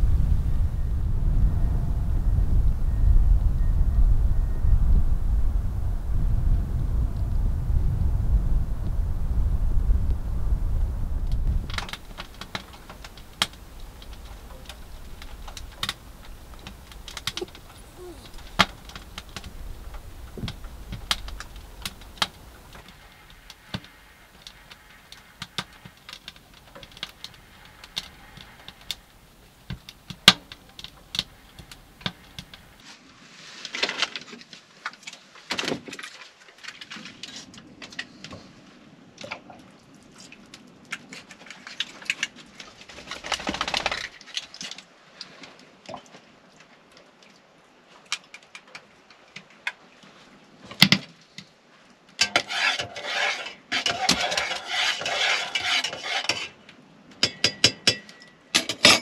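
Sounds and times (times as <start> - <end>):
wood fire crackling: 0.0 - 32.8, 40.4 - 45.5, 51.7 - 56.5
clatter and handling noises: 40.2 - 45.6, 52.2 - 56.6.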